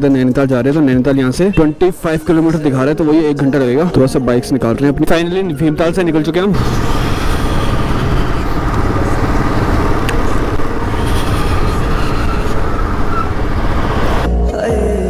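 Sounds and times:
motorcycle engine running: 0:06.5 - 0:14.3.

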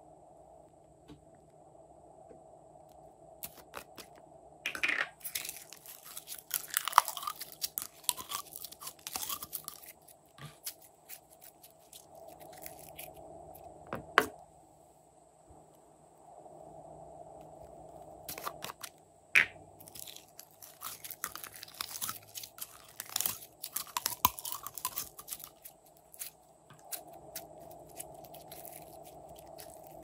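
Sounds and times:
slime crackling and popping: 0:05.2 - 0:13.1, 0:19.8 - 0:30.0.

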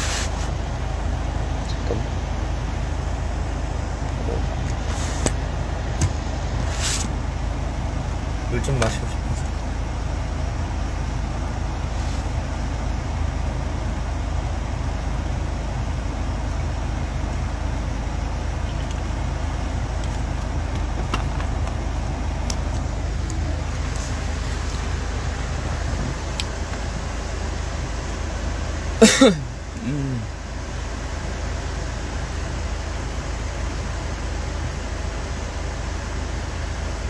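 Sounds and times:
road and engine rumble in car: 0:00.0 - 0:37.0.

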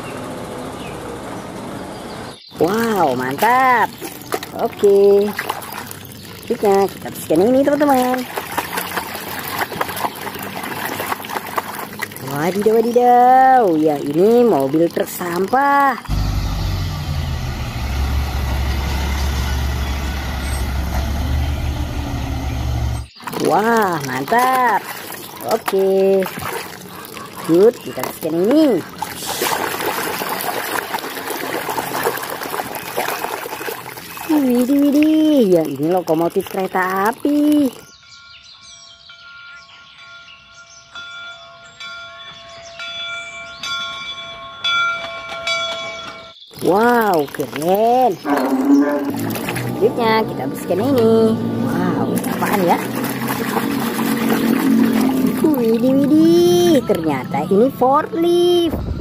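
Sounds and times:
garbage truck engine droning: 0:13.6 - 0:23.2, 0:48.1 - 0:59.0
steam locomotive bell ringing: 0:37.9 - 0:46.4.

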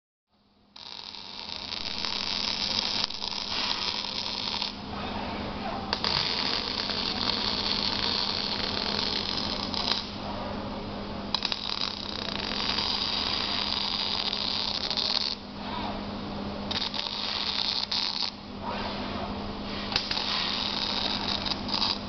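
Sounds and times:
steady low hum: 0:00.3 - 0:22.0
crackling welding arc: 0:00.8 - 0:04.9, 0:05.9 - 0:10.2, 0:11.3 - 0:15.5, 0:16.7 - 0:18.4, 0:19.9 - 0:22.0.

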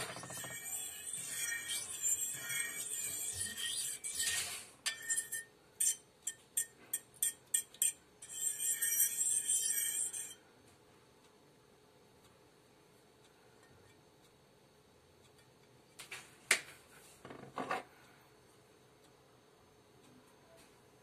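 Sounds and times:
fork beating egg in bowl: 0:00.0 - 0:10.4.

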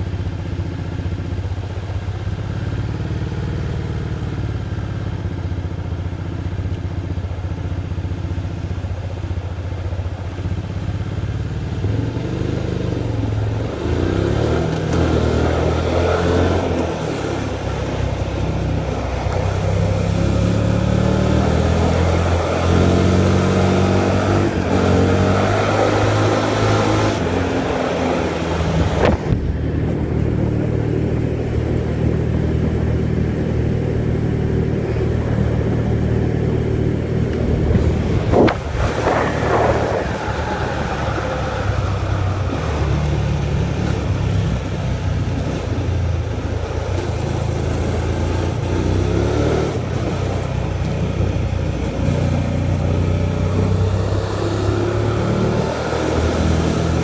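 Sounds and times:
motorcycle engine revving: 0:00.0 - 0:57.0
wind rush: 0:27.1 - 0:32.9, 0:36.9 - 0:44.7.

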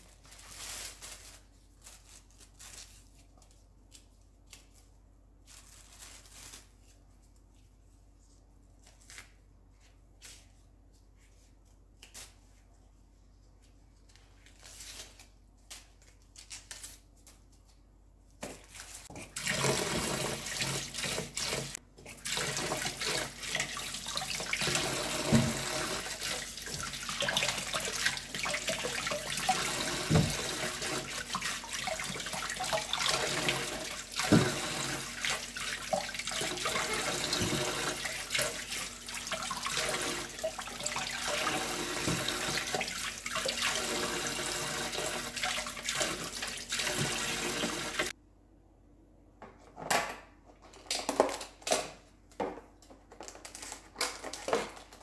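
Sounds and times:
tap water splashing into sink: 0:19.4 - 0:43.7.

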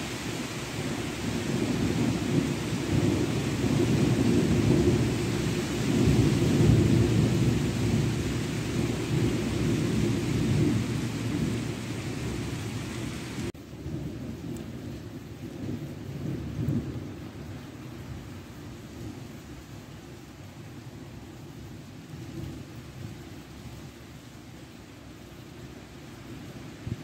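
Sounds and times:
rain hiss: 0:00.0 - 0:27.0
rolling thunder rumble: 0:00.7 - 0:18.3.

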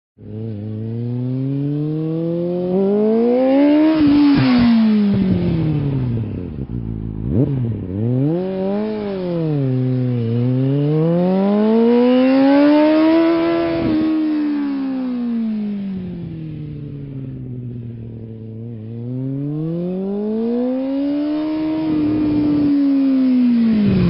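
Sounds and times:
motorcycle engine revving: 0:00.2 - 0:24.0.

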